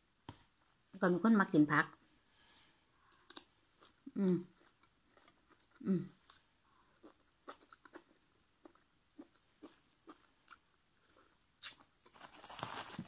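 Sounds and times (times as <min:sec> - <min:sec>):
close-mouthed chewing: 0:03.0 - 0:12.4.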